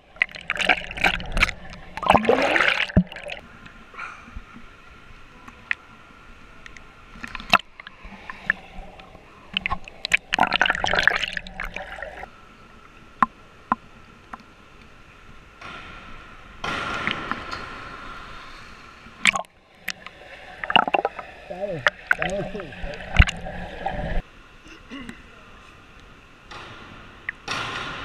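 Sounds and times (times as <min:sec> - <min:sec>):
pool water lapping and splashing: 0:00.0 - 0:13.9, 0:16.9 - 0:25.9
water drips and slaps: 0:19.2 - 0:24.2
muffled underwater sound: 0:20.7 - 0:24.2.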